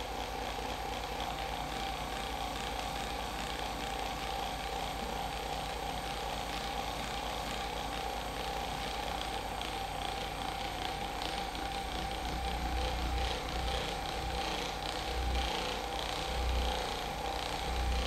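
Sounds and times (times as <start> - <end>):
small motor humming: 0.0 - 18.0.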